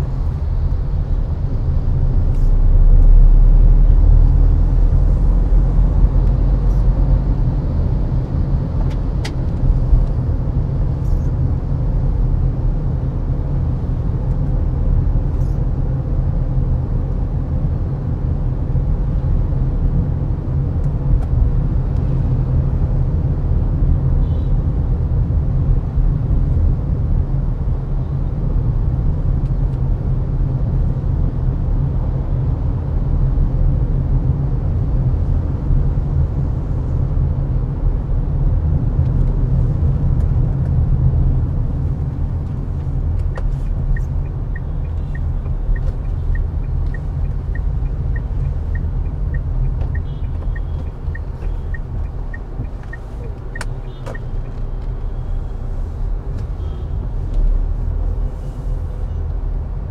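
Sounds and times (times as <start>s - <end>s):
car engine and road noise: 0.0s - 59.9s.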